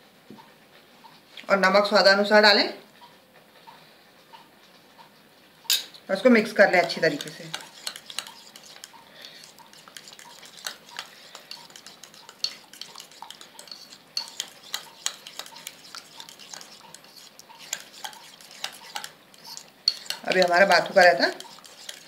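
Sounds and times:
spoon stirring thick yogurt: 0:06.2 - 0:22.0.

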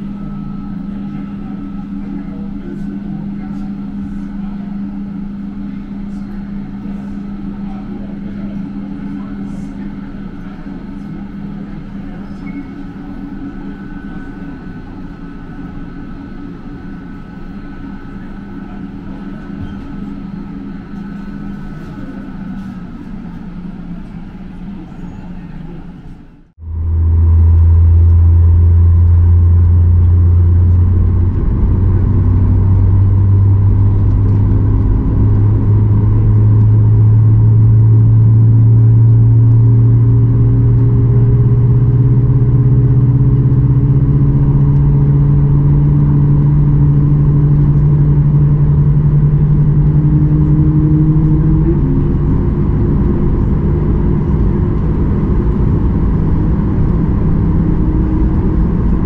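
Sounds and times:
low hum rising in pitch: 0:00.0 - 0:24.0, 0:26.4 - 0:59.0
jet engine roaring: 0:26.6 - 0:59.0.

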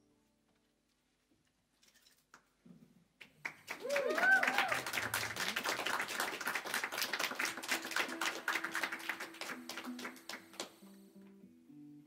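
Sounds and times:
audience applauding: 0:03.2 - 0:10.8
audience cheering: 0:03.7 - 0:09.7.

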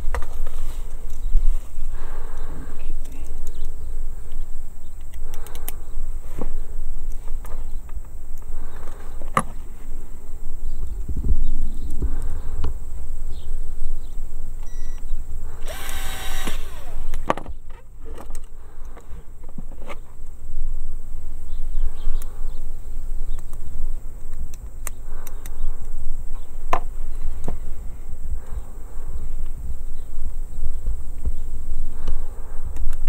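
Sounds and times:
steady low rumble: 0:00.0 - 0:33.0
sharp clicks: 0:02.3 - 0:06.0, 0:23.3 - 0:26.0
cordless drill whining: 0:15.6 - 0:17.3.

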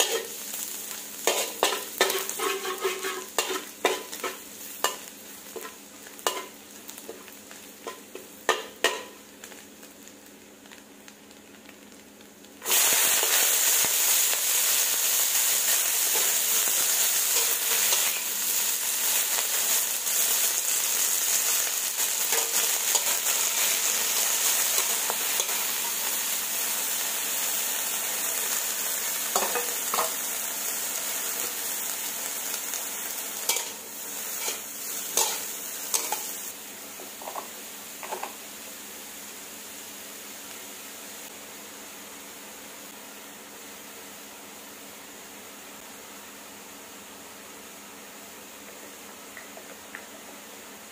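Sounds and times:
metal spatula scraping wok: 0:00.0 - 0:00.4, 0:01.2 - 0:05.0, 0:33.5 - 0:36.4
vegetables sizzling in wok: 0:00.0 - 0:50.9.

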